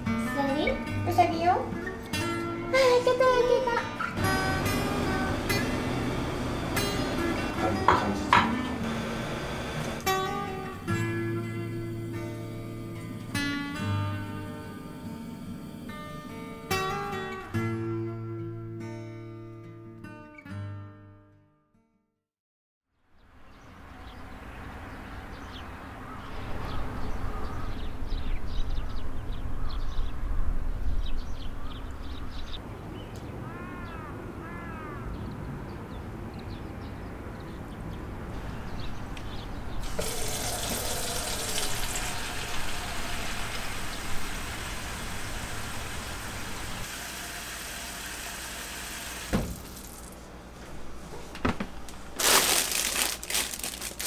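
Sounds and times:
tap running into a sink: 39.8s - 42.6s, 49.2s - 50.0s
plastic bag crinkling: 51.9s - 54.0s.

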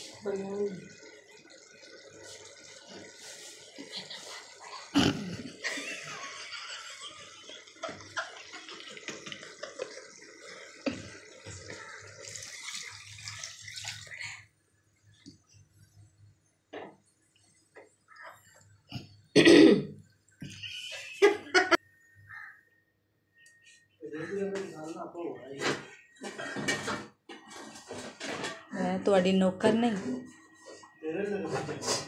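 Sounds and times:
liquid bubbling and sizzling: 0.0s - 21.2s.

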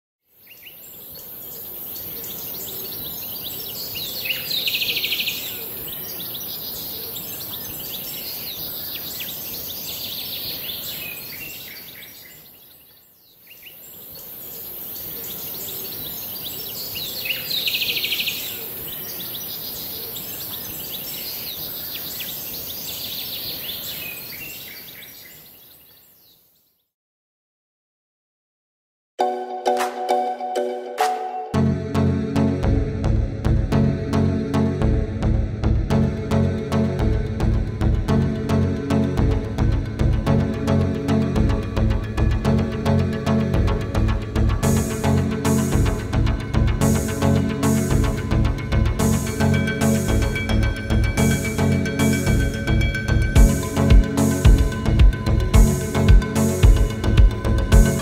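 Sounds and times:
small birds chirping: 0.4s - 26.9s
buzzy bird trill: 44.6s - 58.0s
steady high hiss: 53.4s - 54.8s.

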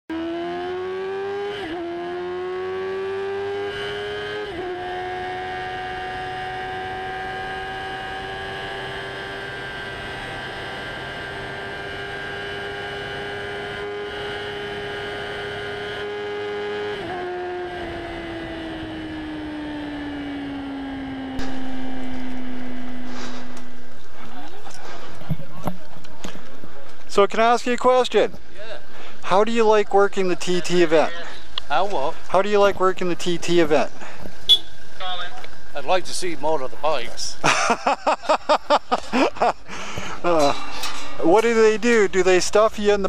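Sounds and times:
motorcycle engine at high revs: 0.1s - 25.8s
loud rough noise: 21.4s - 25.4s.

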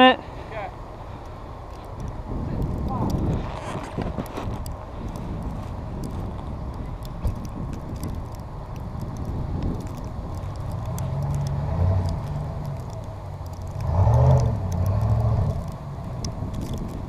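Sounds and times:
pickup truck engine running: 4.1s - 17.0s.

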